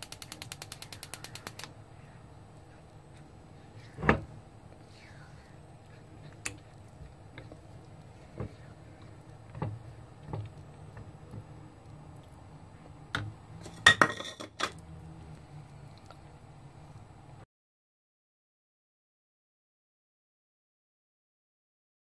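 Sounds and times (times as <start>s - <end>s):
low steady hum: 0.0s - 17.4s.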